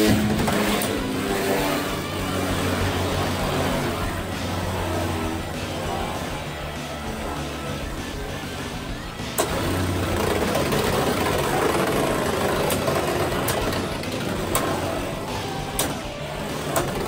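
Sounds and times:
spinning tops whirring: 0.0s - 17.0s
spinning tops clacking together: 9.4s - 17.0s.

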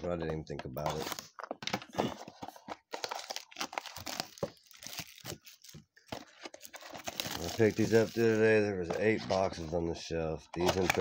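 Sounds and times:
cardboard and wrapper tearing: 0.8s - 8.4s.

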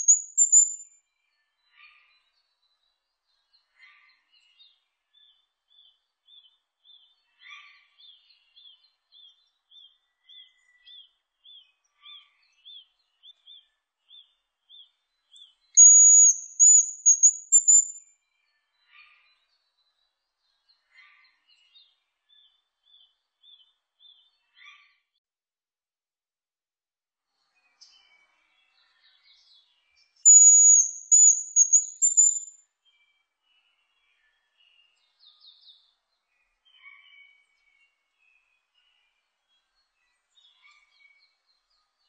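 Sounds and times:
hazel grouse whistling song: 0.0s - 0.8s, 15.8s - 18.0s, 30.3s - 32.5s
faint short chirps: 0.0s - 0.9s, 15.8s - 18.0s, 30.3s - 32.5s
lower bird calls: 0.0s - 0.9s, 15.8s - 18.0s, 30.3s - 32.6s.

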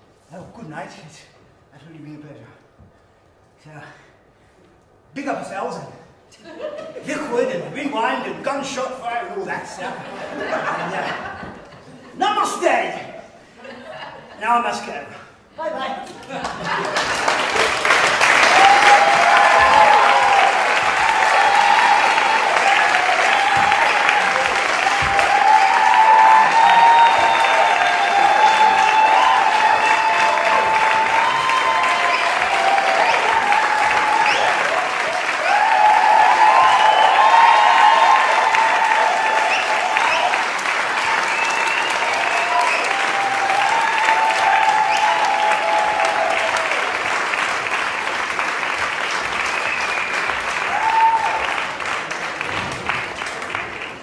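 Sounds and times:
audience applauding: 16.2s - 54.0s
audience cheering: 16.4s - 54.0s.

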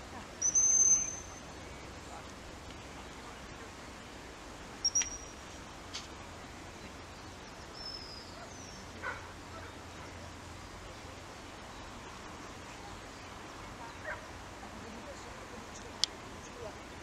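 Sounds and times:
high-pitched chirps: 0.4s - 1.4s, 4.8s - 5.4s.

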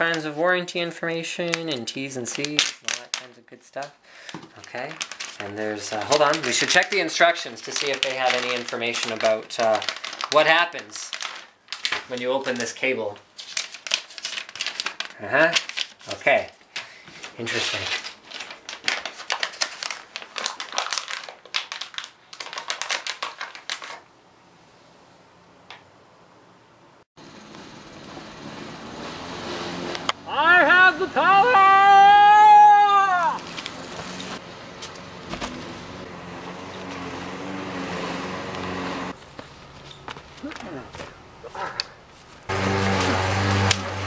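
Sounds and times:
plastic packaging crinkling: 1.5s - 3.4s, 4.2s - 24.1s.

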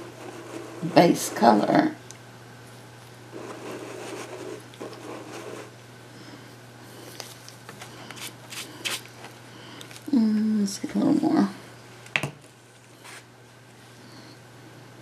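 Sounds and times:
steady low hum: 0.0s - 15.0s
rubbing and handling noises: 3.3s - 5.7s, 7.0s - 10.1s.

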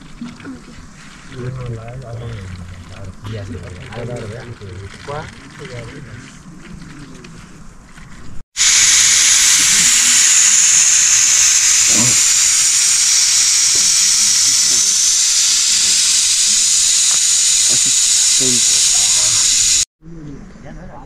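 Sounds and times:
heavy rain hissing: 8.6s - 19.9s.

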